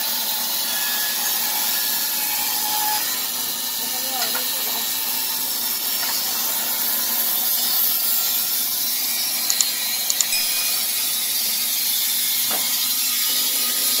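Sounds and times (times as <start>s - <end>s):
sawmill hissing: 0.0s - 14.0s.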